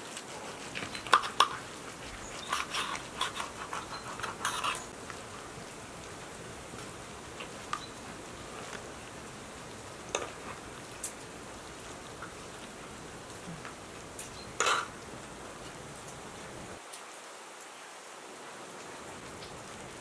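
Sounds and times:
utensils scraping and tapping fish: 0.0s - 5.2s, 10.1s - 11.2s, 14.2s - 15.0s
faint steady hiss: 0.0s - 20.0s.

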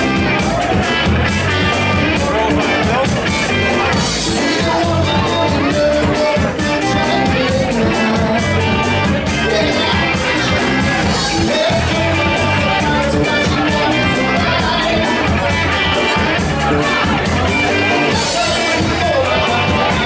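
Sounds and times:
drum beat: 0.0s - 20.0s
live rock band playing: 0.0s - 20.0s
person singing: 0.0s - 20.0s.

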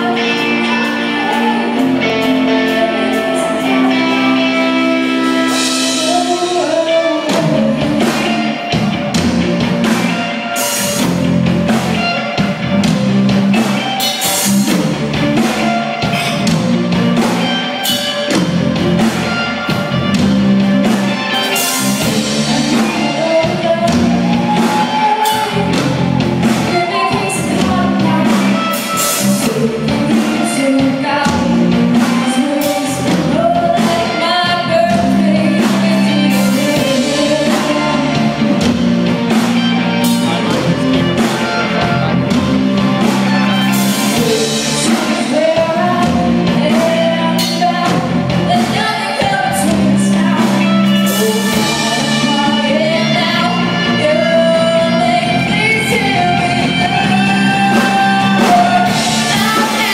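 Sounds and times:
distorted electric guitars: 0.0s - 59.9s
drum kit: 0.0s - 59.9s
electric bass: 0.0s - 59.9s
woman singing lead: 0.0s - 59.9s.

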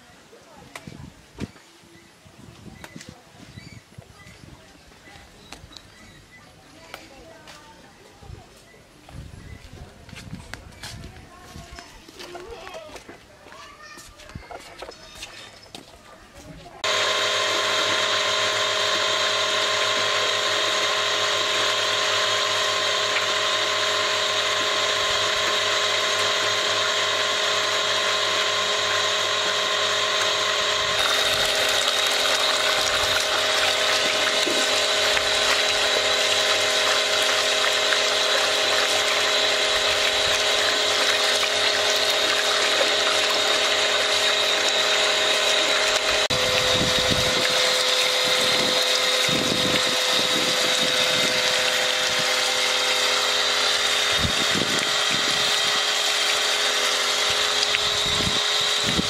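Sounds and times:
water pump motor whine: 14.8s - 59.0s
water splashing into steel basin: 31.0s - 58.0s.

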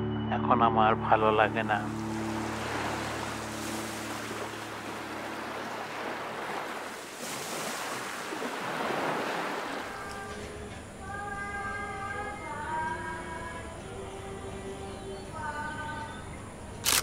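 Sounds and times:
music: 0.0s - 5.8s, 9.9s - 17.0s
waves breaking on a beach: 1.8s - 10.2s.

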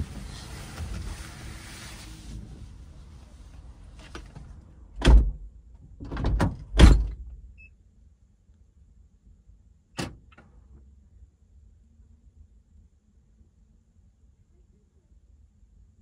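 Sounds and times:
knocks and thump of person getting in: 4.0s - 7.3s.

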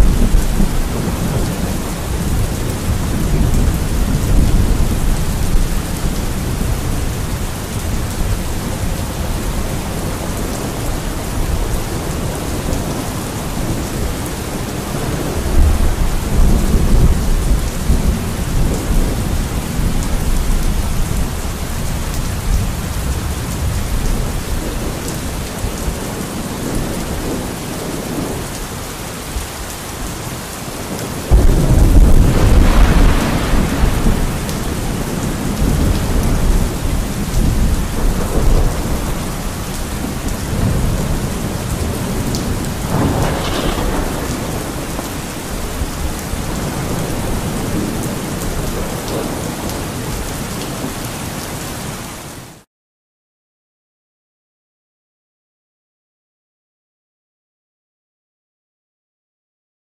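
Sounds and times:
thunder rumbling: 0.0s - 28.6s, 30.0s - 50.8s
steady rain: 0.0s - 52.7s
loud peal of thunder: 31.3s - 49.9s.

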